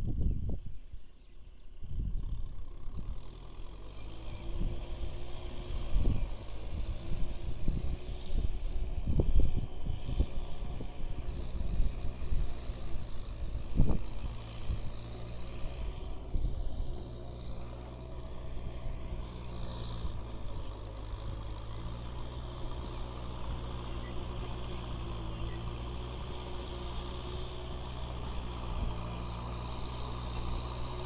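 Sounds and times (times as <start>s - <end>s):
wind gusts: 0.0s - 1.1s, 4.4s - 31.0s
tractor diesel engine running: 0.0s - 31.0s.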